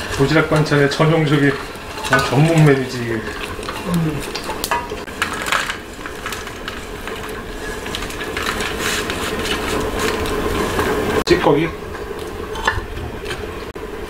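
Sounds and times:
dried fish rustling in a pan: 0:00.0 - 0:11.2.

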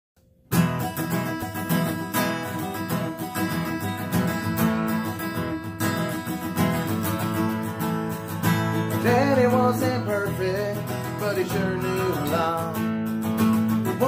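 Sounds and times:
acoustic guitar strumming chords: 0:00.4 - 0:14.0.

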